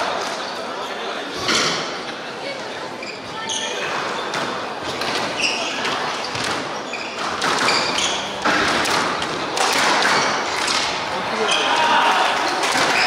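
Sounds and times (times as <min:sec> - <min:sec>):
shoes squeaking on wooden floor: 0:03.0 - 0:08.5
squash ball struck by rackets: 0:07.2 - 0:10.9.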